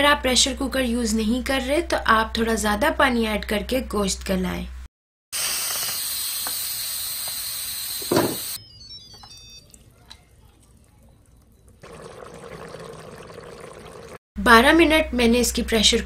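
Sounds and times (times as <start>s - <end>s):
pressure cooker steam hissing: 5.4s - 8.6s.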